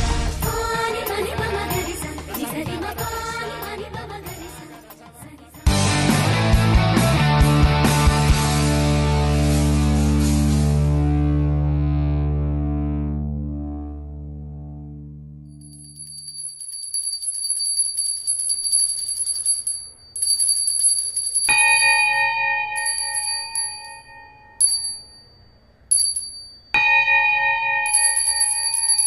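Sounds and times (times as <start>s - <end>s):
high trilling bell: 15.5s - 29.0s.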